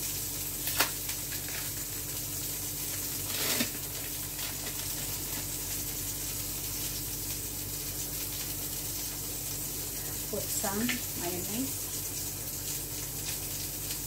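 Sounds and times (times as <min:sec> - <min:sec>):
plastic film rustling: 0:00.0 - 0:07.0.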